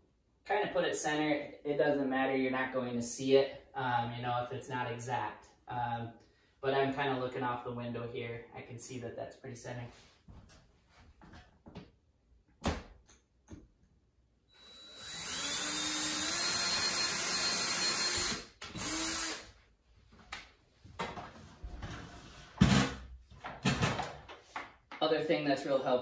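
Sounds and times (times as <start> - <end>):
cordless drill boring into wood: 14.5 - 19.5
knocks and thump of handling: 22.6 - 24.8.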